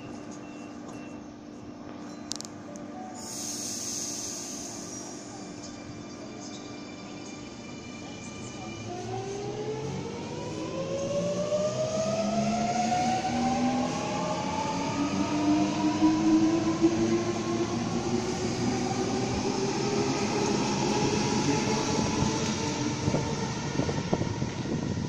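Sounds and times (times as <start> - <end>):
wheels rumbling on rail: 4.1 - 25.0.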